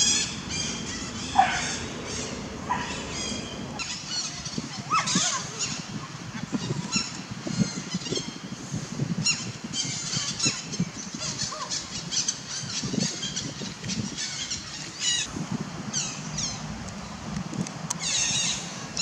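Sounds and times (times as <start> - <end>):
low background rumble: 0.0 - 4.9
birds chirping: 0.0 - 19.0.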